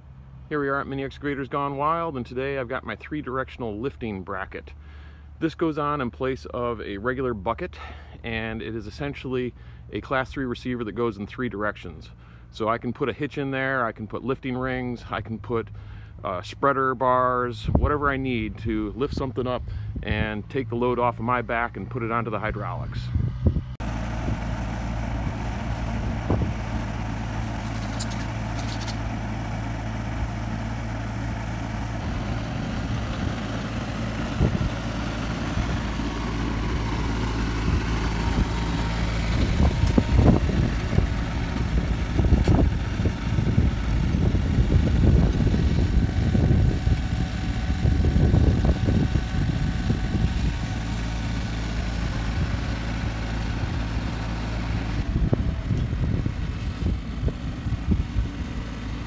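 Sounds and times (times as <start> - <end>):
diesel engine running: 0.0 - 59.0
clanks and rattles: 27.3 - 29.2.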